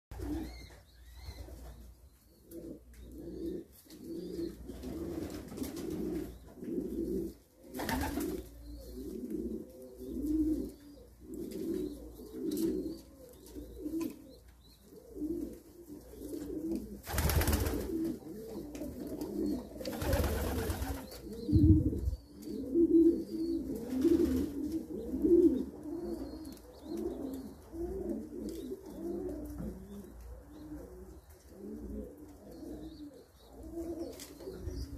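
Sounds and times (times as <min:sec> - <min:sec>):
pigeons cooing: 0:00.1 - 0:34.9.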